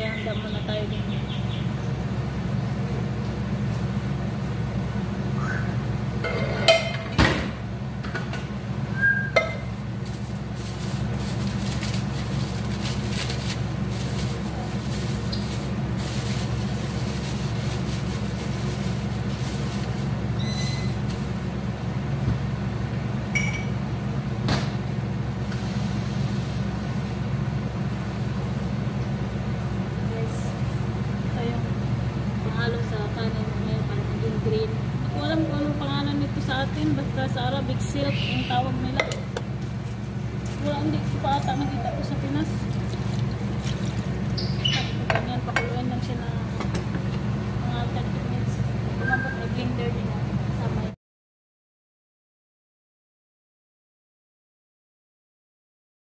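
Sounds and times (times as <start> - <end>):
low mechanical hum: 0.0 - 51.0
kitchenware clinking: 6.2 - 7.2.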